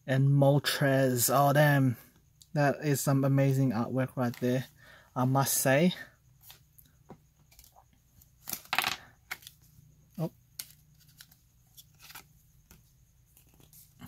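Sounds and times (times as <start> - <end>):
paper cards rustling: 4.1 - 4.7, 7.4 - 14.0.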